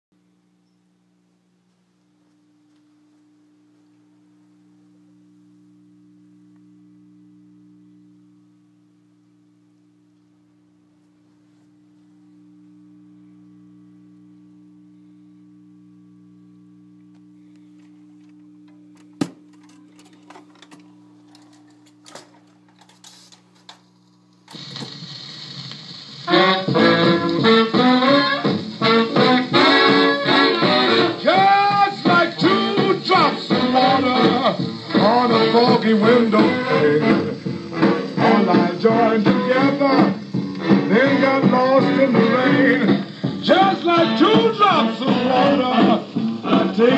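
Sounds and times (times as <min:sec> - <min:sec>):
amplifier hum: 0:00.1 - 0:46.9
record surface hiss: 0:00.1 - 0:46.9
record playing music with horns: 0:00.3 - 0:46.9
record changer clicks: 0:17.0 - 0:25.9.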